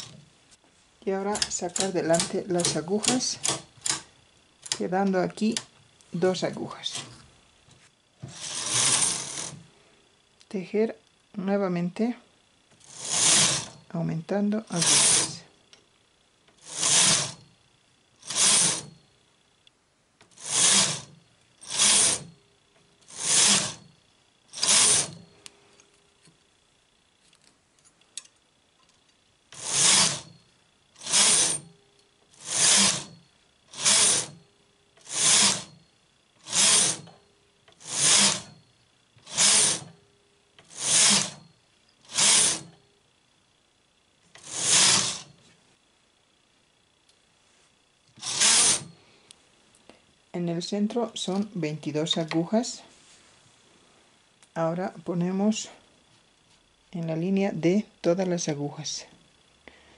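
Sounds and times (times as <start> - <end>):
knitting machine carriage swishing: 8.3 - 9.6, 12.9 - 13.8, 14.7 - 15.4, 16.7 - 17.4, 18.3 - 18.9, 20.4 - 21.1, 21.7 - 22.3, 23.1 - 23.8, 24.6 - 25.2, 31.0 - 31.7, 32.4 - 33.1, 33.8 - 34.4, 35.0 - 35.7, 36.5 - 37.0, 37.8 - 38.5, 39.3 - 39.9, 40.7 - 41.4, 42.1 - 42.7, 44.4 - 45.3, 48.2 - 48.9.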